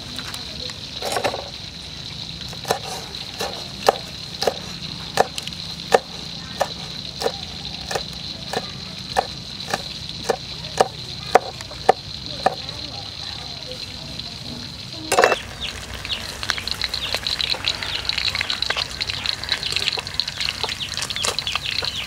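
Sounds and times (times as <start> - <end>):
cleaver chopping on wooden block: 2.6 - 12.6.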